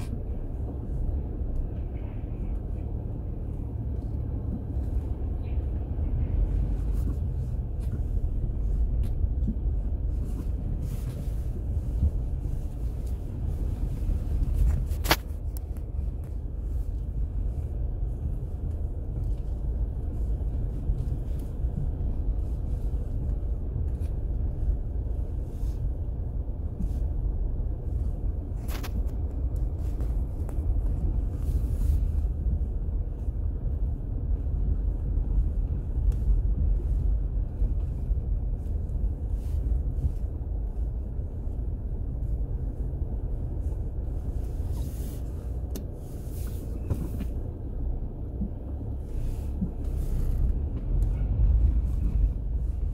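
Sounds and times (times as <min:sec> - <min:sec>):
car rumbling from inside: 0:00.0 - 0:52.9.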